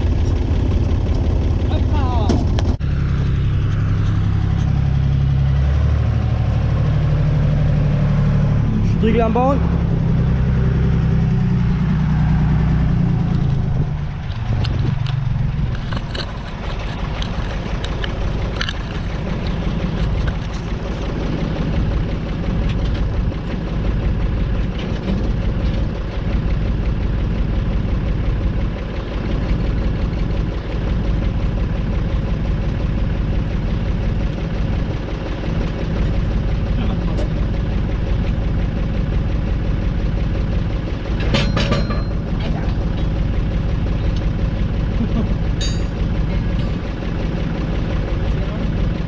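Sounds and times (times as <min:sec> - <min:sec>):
tractor diesel idling: 0:00.0 - 0:49.0
metal clinks: 0:41.3 - 0:42.5, 0:45.6 - 0:46.8.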